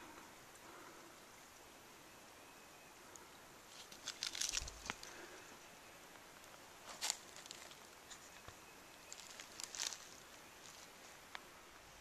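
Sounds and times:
footsteps on stones and leaves: 3.7s - 5.2s, 6.4s - 11.0s.

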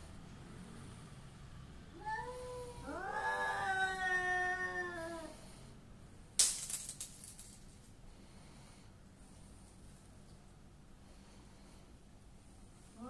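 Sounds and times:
cat yowling: 2.0s - 5.4s.

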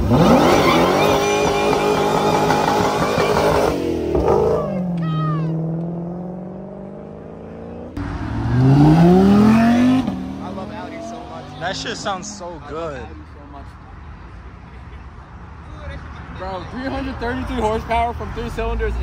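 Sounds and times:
car engine revving: 0.0s - 12.6s
sports car accelerating: 0.0s - 12.6s.

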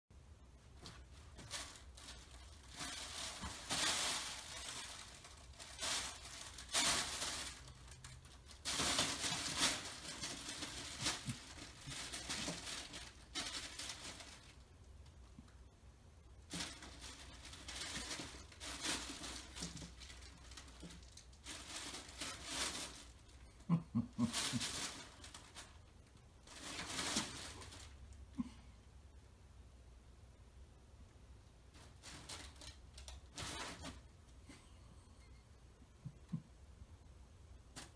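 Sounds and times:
fabric cat tunnel crinkling: 0.6s - 14.7s, 16.4s - 28.2s, 31.7s - 34.2s.

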